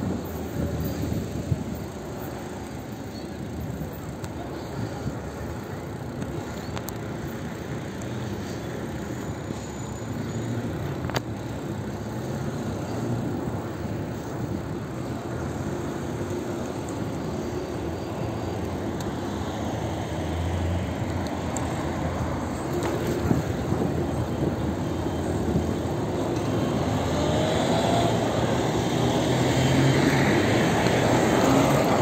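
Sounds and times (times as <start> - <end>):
bicycle riding rumble: 0.0 - 32.0
passing car engines: 18.2 - 32.0.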